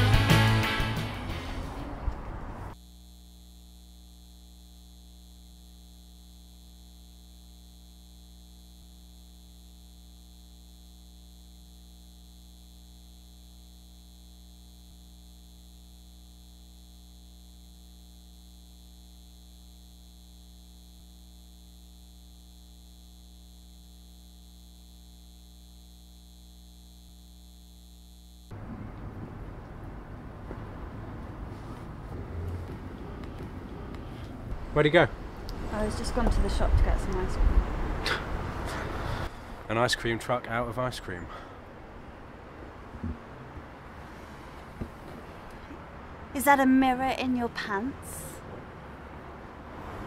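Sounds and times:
outdoor street sound: 0:00.0 - 0:02.8, 0:28.5 - 0:50.0
electrical mains hum: 0:00.4 - 0:50.0.

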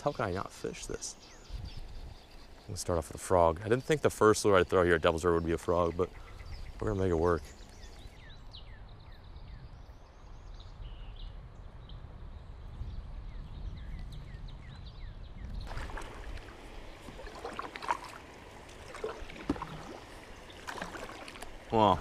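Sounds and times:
water splashing around kayak: 0:15.6 - 0:22.0
paddle knocks on hull: 0:18.8 - 0:20.0.

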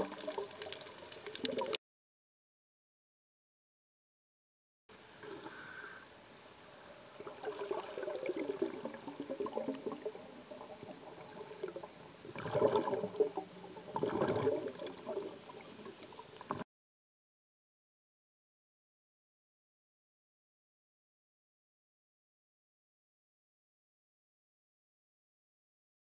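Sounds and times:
muffled underwater water sloshing: 0:06.9 - 0:16.6.

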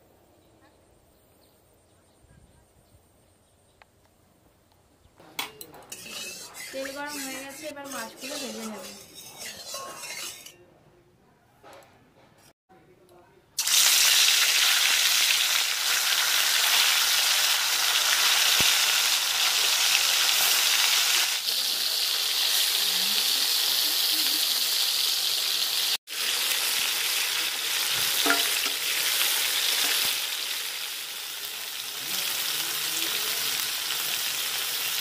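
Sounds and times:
fish sizzling in hot oil: 0:05.9 - 0:10.4, 0:13.6 - 0:35.0
spatula tapping a pan: 0:28.0 - 0:28.8.

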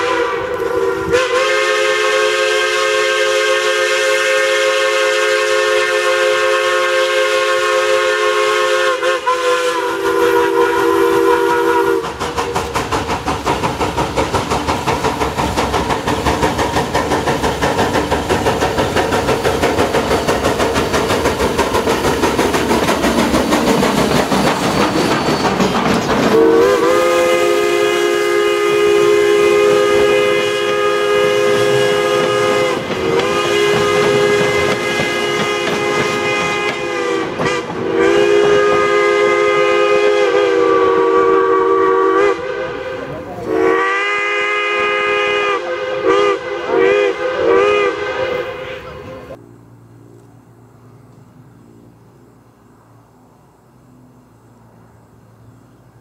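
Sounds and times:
locomotive chime whistle: 0:00.0 - 0:12.1, 0:24.0 - 0:49.4
steam locomotive chuffing: 0:00.0 - 0:49.4.

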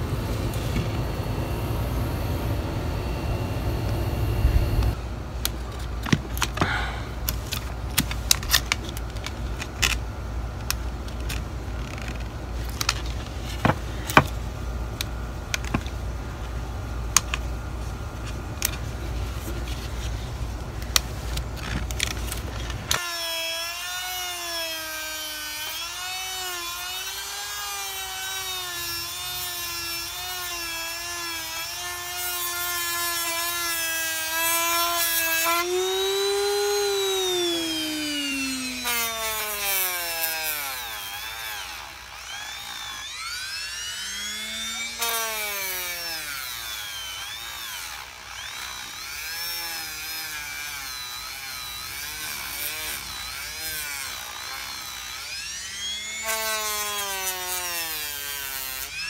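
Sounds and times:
rotary tool grinding wood: 0:18.6 - 0:59.0.

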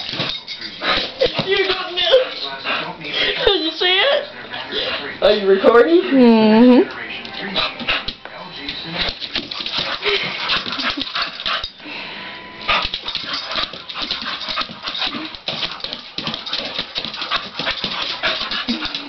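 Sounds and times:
dog paws tapping on floor: 0:00.0 - 0:02.8, 0:06.9 - 0:11.7, 0:12.7 - 0:19.0.

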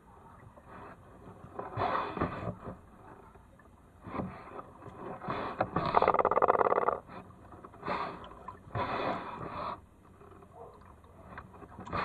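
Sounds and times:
kayak paddle strokes in water: 0:00.0 - 0:12.0.

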